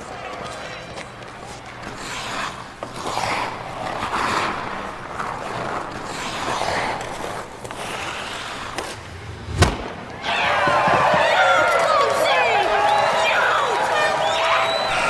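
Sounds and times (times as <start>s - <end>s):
skates scraping on ice: 0.0s - 15.0s
puck shot crack: 2.9s - 11.9s.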